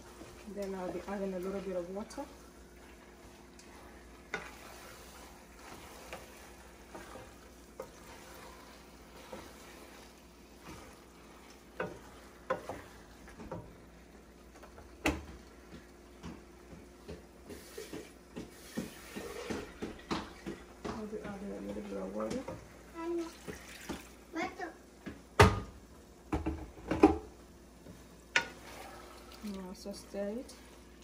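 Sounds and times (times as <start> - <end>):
faint sizzle: 0.0 - 31.0
spoon scraping a pot: 3.6 - 13.6, 28.3 - 29.5.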